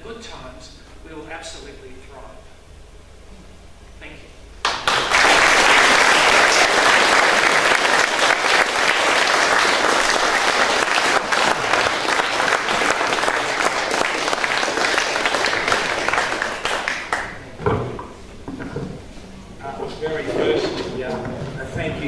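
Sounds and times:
audience applauding: 0:04.6 - 0:17.5.

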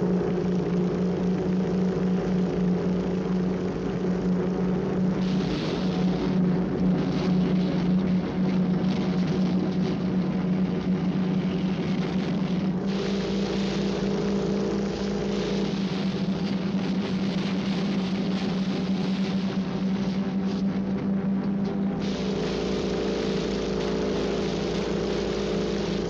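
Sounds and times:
propeller plane engine droning: 0:00.0 - 0:26.0
rushing hiss: 0:12.9 - 0:16.6, 0:22.0 - 0:26.0.

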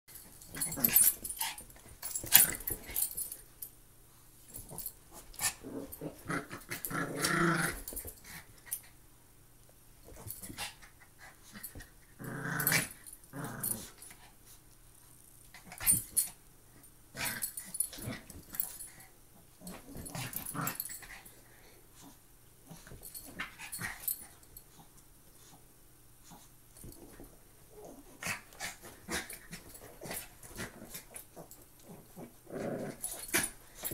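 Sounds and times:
dogs growling: 0:04.6 - 0:08.0, 0:12.2 - 0:14.0, 0:27.8 - 0:33.9.

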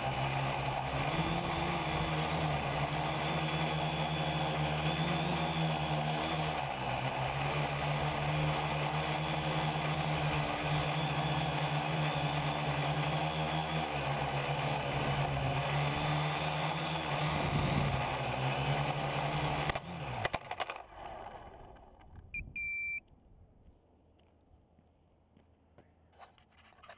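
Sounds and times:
drone propellers whirring: 0:00.0 - 0:22.0
short electronic beep: 0:22.3 - 0:23.1.

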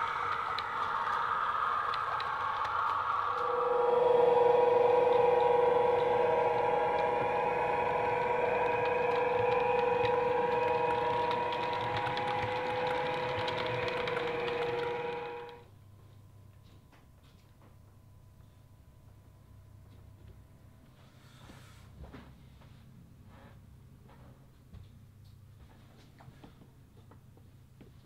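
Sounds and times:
model train motor hum: 0:00.0 - 0:15.6.

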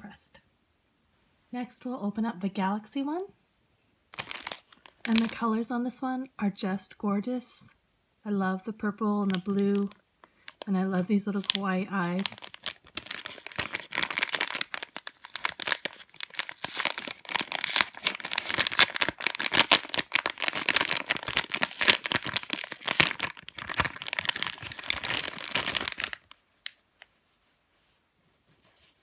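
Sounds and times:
plastic bag crinkling: 0:04.2 - 0:05.4, 0:09.2 - 0:10.7, 0:11.3 - 0:26.8.

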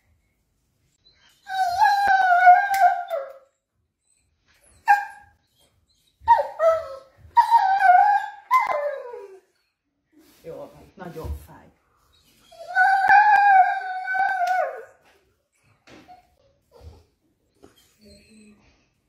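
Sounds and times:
dog whining: 0:01.2 - 0:09.7, 0:12.1 - 0:15.0.

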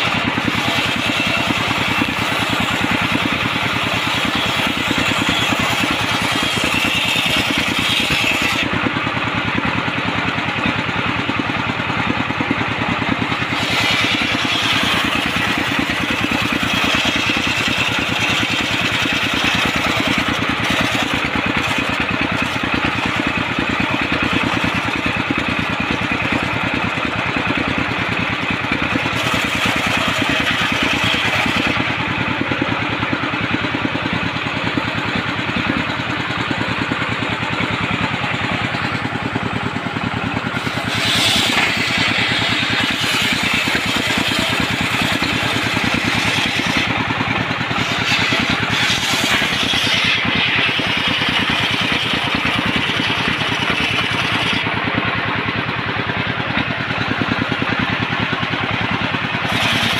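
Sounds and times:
circular saw engine running: 0:00.0 - 0:59.9
saw blade cutting wood: 0:00.0 - 0:59.9.

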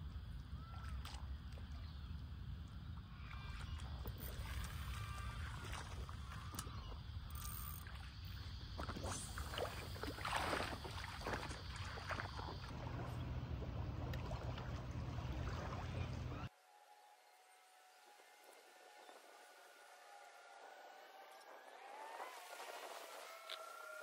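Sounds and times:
water splashing and sloshing: 0:00.4 - 0:16.7, 0:17.4 - 0:24.0
steady low rumble: 0:12.3 - 0:16.5.

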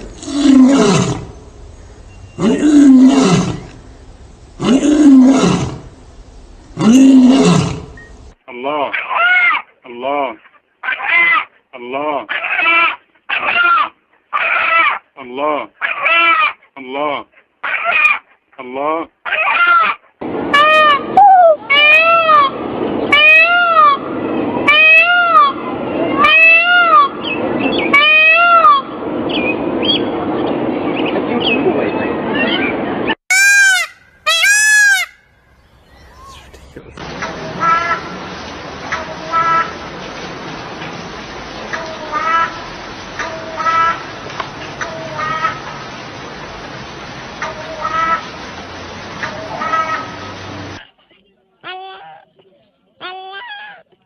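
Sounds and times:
lion roaring: 0:00.0 - 0:01.4, 0:02.4 - 0:03.8, 0:04.6 - 0:05.9, 0:06.8 - 0:08.0
peacock wailing calls: 0:09.1 - 0:09.6, 0:19.3 - 0:25.6, 0:33.3 - 0:36.6.

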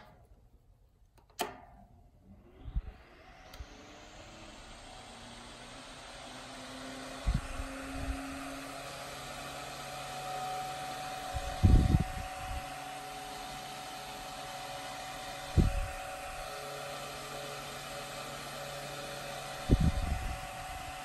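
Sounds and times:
desk fan running: 0:02.3 - 0:21.0
air gusts hitting microphone: 0:11.4 - 0:12.6.

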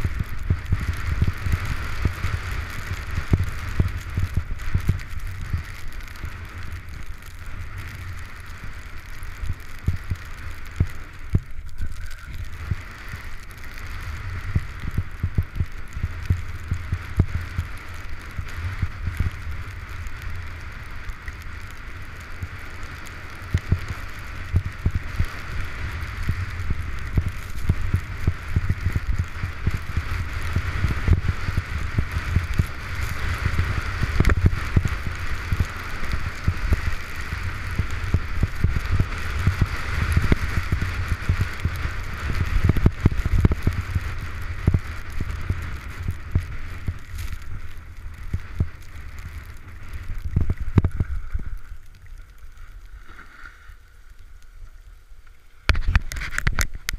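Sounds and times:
wind buffeting microphone: 0:00.0 - 0:51.7
skis sliding on snow: 0:00.0 - 0:56.9.

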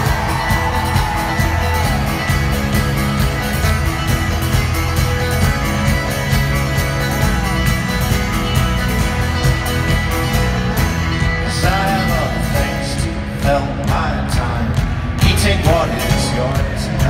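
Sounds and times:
live folk-rock band playing: 0:00.0 - 0:17.0
steady driving drum beat: 0:00.0 - 0:17.0
strummed acoustic guitar: 0:00.0 - 0:17.0
upright double bass: 0:00.0 - 0:17.0.

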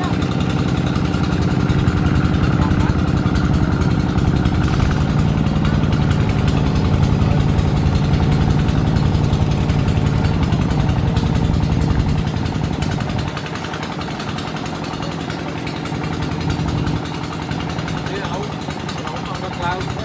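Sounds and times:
single-cylinder diesel engine running: 0:00.0 - 0:20.0.

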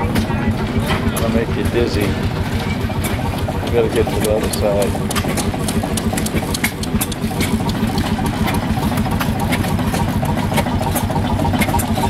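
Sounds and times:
stationary gas engine running: 0:00.0 - 0:12.0
sharp clicks: 0:02.6 - 0:12.0.

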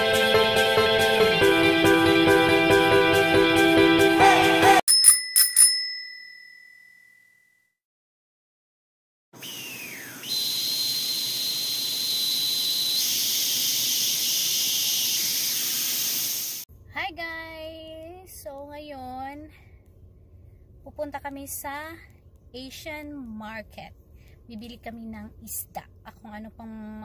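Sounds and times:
bright bell ding: 0:04.9 - 0:07.7
electronic static hiss with whine: 0:09.6 - 0:16.6
woman speaking: 0:16.9 - 0:19.6, 0:20.8 - 0:27.0.

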